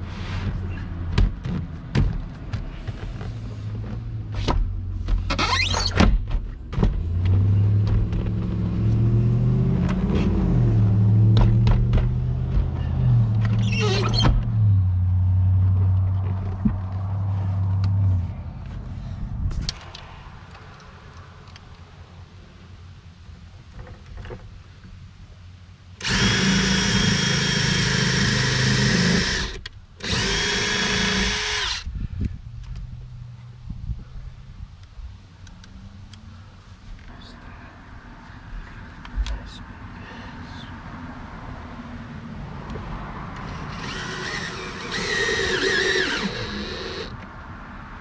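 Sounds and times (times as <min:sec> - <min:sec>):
cordless drill whining: 0:26.0 - 0:31.8, 0:43.5 - 0:47.2.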